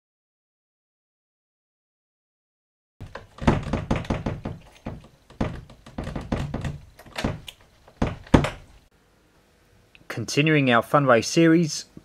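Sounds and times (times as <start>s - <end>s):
knocks and thuds on hard surface: 3.0s - 8.7s.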